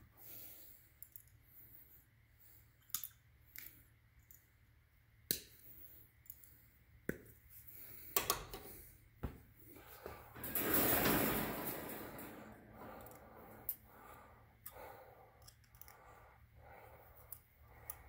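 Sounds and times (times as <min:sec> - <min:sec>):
wire mesh rattling on metal: 0:10.3 - 0:13.1.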